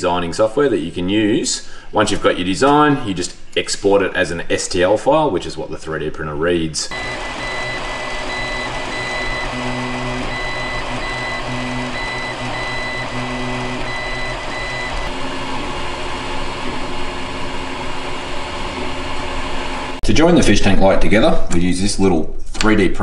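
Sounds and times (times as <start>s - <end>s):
stepper motors humming tones: 6.9s - 20.0s
cooling fans whirring: 6.9s - 21.1s.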